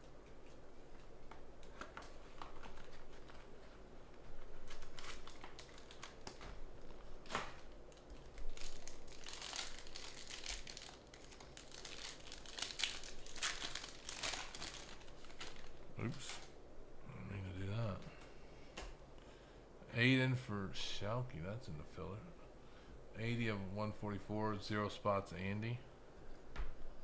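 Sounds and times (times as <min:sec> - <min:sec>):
foil wrapper crinkling and tearing: 0:04.4 - 0:16.6.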